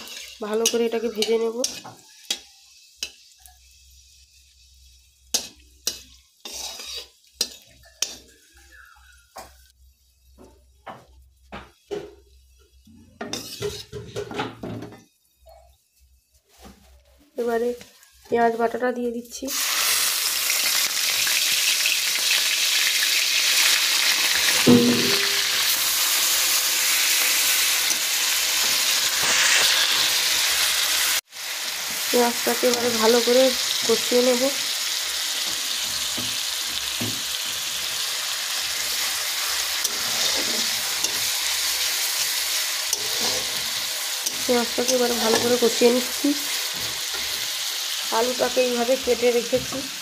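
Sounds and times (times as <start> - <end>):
metal spatula scraping pan: 0.0 - 3.3, 5.3 - 8.7, 12.3 - 14.6, 24.5 - 25.9, 38.7 - 47.5
oil sizzling: 0.0 - 16.8, 19.3 - 50.0.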